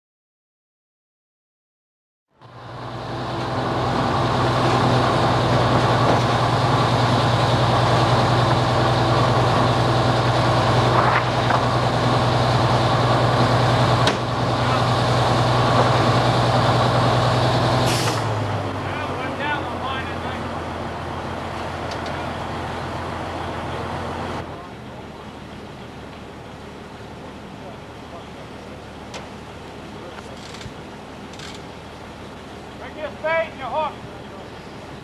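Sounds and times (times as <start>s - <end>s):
diesel engine running: 2.3s - 35.0s
short hiss: 17.9s - 18.3s.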